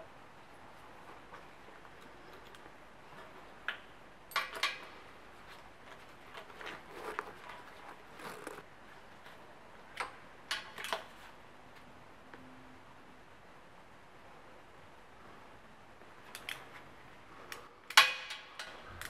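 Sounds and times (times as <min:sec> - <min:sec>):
wrench clicking on metal bolts: 0:04.3 - 0:04.9.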